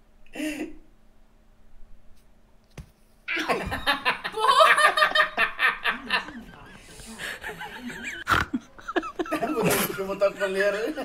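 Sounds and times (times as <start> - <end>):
people laughing: 3.3 - 11.0.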